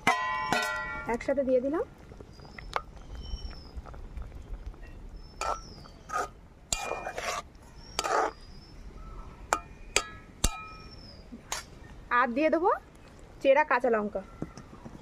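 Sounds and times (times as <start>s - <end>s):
faint bird chirps: 2.2s - 3.8s, 4.4s - 6.3s, 7.6s - 12.0s, 14.2s - 15.0s
spatula scraping metal pot: 5.4s - 8.5s.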